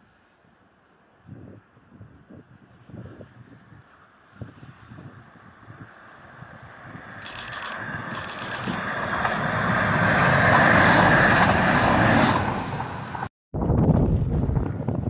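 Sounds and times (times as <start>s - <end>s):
train passing at speed: 8.8s - 13.3s.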